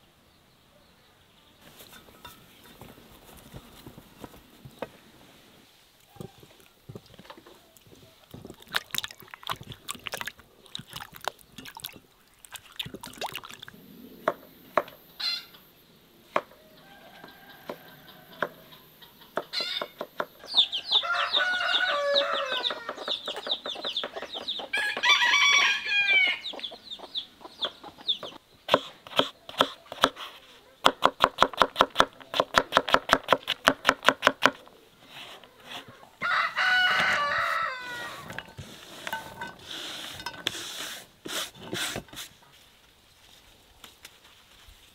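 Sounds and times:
rooster crowing: 16.5 - 18.8, 19.6 - 23.0, 24.7 - 26.5, 36.2 - 38.3.

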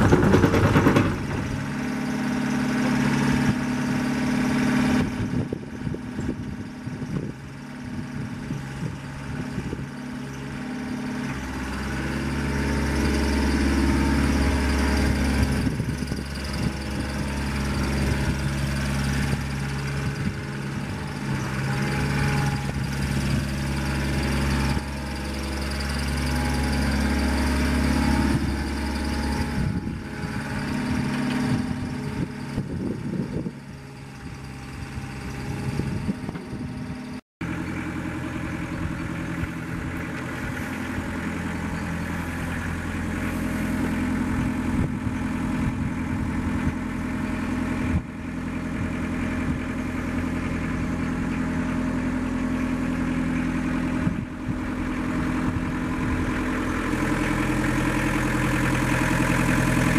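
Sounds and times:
excavator diesel engine running: 0.0 - 59.9.

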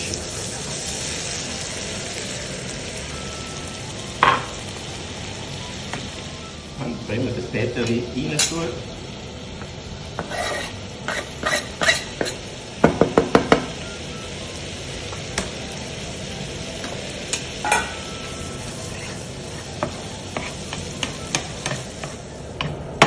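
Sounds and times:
food sizzling in a frying pan: 0.0 - 23.0
knife scraping a cutting board: 10.2 - 12.4.

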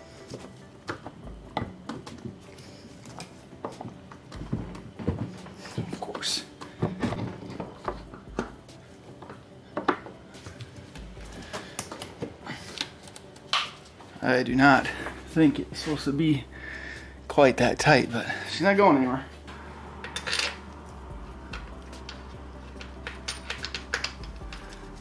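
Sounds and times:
tools tapping on metal parts: 20.0 - 20.8, 21.5 - 25.0.

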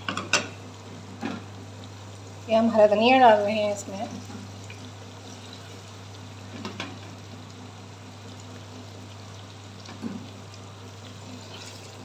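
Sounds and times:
curry bubbling in a pot: 3.8 - 12.0.

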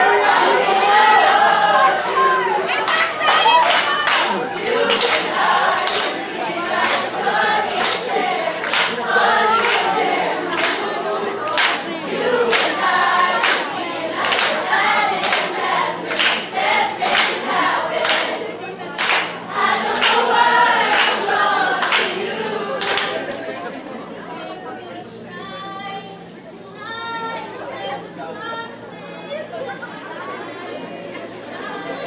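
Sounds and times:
choir singing and chanting: 0.0 - 32.0
sharp claps: 2.9 - 7.1, 7.7 - 9.0, 9.6 - 9.9, 10.5 - 10.9, 11.5 - 11.9, 12.5 - 12.8, 13.4 - 14.6, 15.2 - 15.5, 16.1 - 17.4, 18.0 - 18.4, 19.0 - 19.4, 20.9 - 22.2, 22.8 - 23.2.

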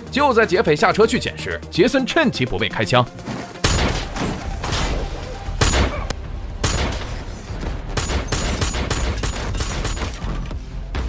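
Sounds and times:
gunshots with reverberation: 3.6 - 5.0, 5.6 - 10.3.

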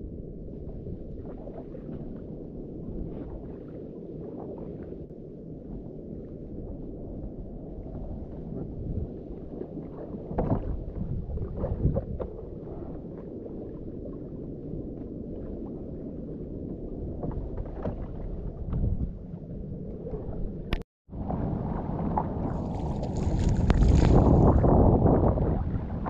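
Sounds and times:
wind rumble on microphone: 0.0 - 26.0
water lapping against boat: 8.1 - 14.5, 17.0 - 26.0.

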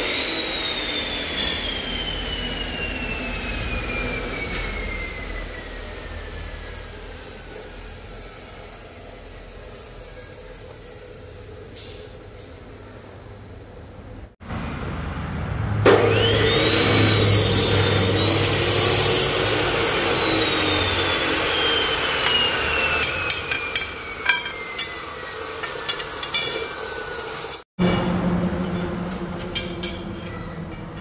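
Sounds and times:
motor humming and whining: 0.0 - 11.8, 15.9 - 27.6.

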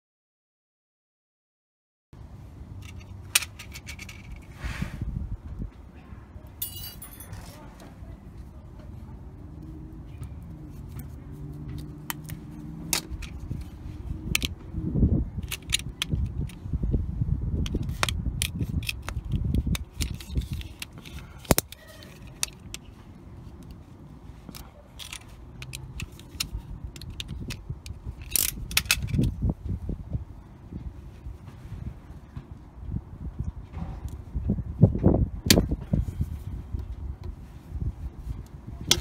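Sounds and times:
handling noise: 2.7 - 4.6, 6.6 - 9.0.

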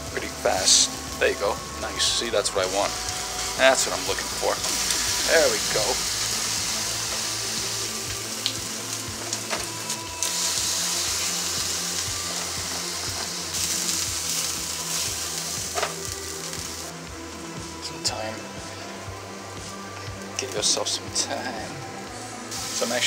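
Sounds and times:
chicken sizzling in oil: 0.0 - 16.9, 22.5 - 23.0.

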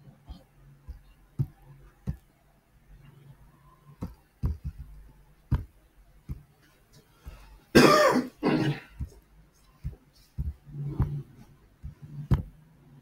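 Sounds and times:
person clearing throat: 7.7 - 9.1.

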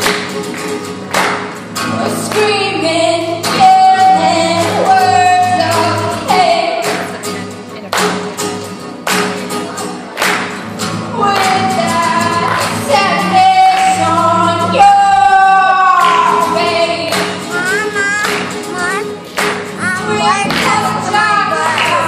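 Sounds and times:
strummed acoustic guitar: 0.0 - 22.0
woman singing: 1.9 - 7.2, 11.1 - 19.1, 19.8 - 22.0.

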